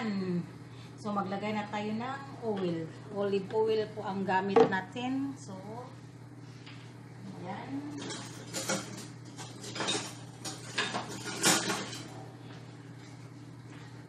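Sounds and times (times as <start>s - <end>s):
dishes and utensils clinking: 7.9s - 12.2s.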